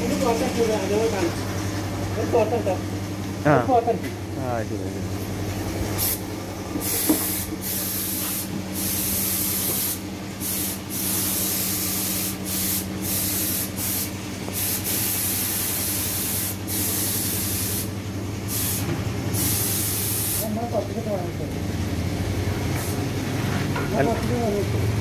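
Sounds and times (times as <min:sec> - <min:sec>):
steady low hum: 0:00.0 - 0:23.5
paint spray gun hissing: 0:06.0 - 0:20.7.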